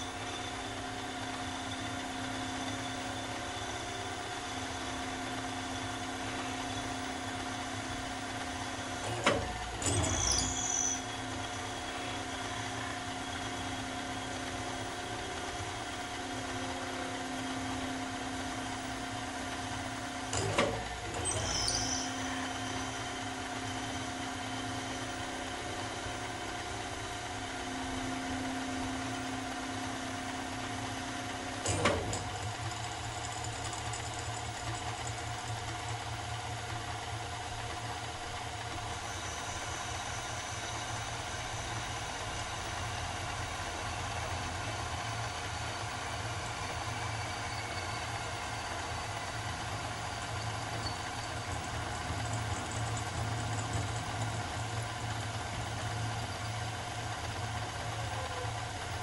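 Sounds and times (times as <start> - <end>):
machine hum with whining tones: 0.0 - 59.0
sharp machine clack: 28.9 - 36.1, 44.8 - 56.8.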